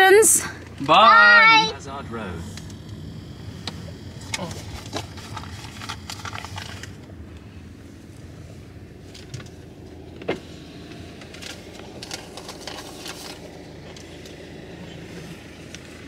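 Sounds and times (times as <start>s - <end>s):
car engine idling: 0.0s - 16.0s.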